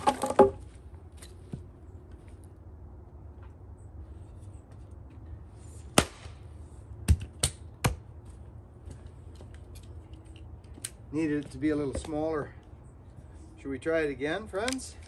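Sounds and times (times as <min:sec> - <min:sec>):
axe chopping firewood: 0:00.0 - 0:00.6, 0:06.0 - 0:06.4, 0:07.0 - 0:08.0.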